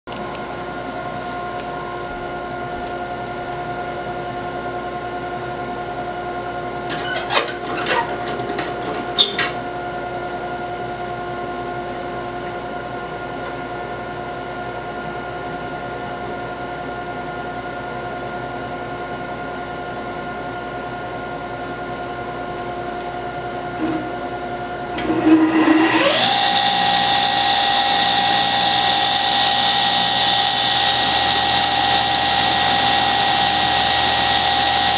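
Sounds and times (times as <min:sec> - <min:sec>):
steady machine hum: 0:00.1 - 0:34.9
table saw motor whining: 0:25.0 - 0:34.9.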